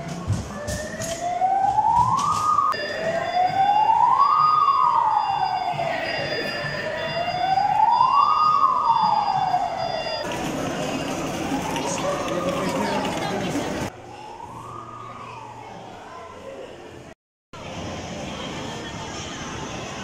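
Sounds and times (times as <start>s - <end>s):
toy fire truck wail siren: 1.0s - 13.3s.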